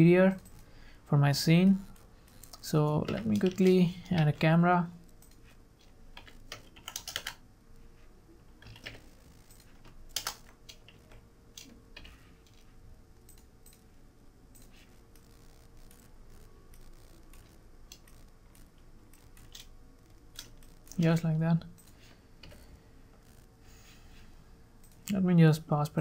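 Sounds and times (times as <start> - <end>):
faint steady hum: 0.0 - 26.0
computer keyboard and mouse clicks: 1.9 - 4.3, 5.0 - 7.4, 8.6 - 13.8, 14.5 - 21.2.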